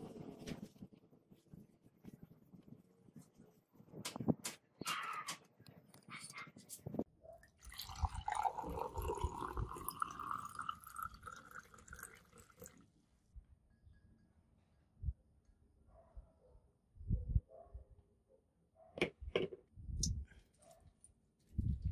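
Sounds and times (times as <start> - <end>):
liquid pouring into glass: 7.4 - 12.9.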